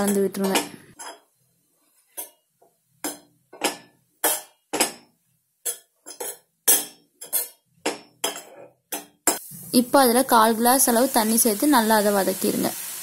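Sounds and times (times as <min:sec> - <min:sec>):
metal utensil clinking on pan: 0:00.0 - 0:01.3, 0:02.1 - 0:09.4.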